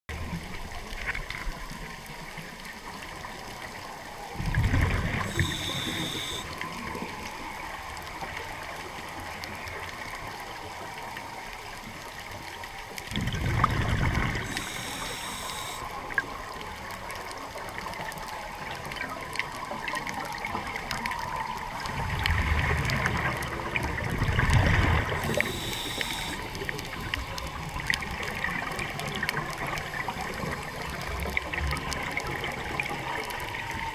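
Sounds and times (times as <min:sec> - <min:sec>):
faint crackling hiss: 0:00.2 - 0:33.9
regulator exhalation bubbling: 0:05.0 - 0:06.5, 0:25.2 - 0:26.8.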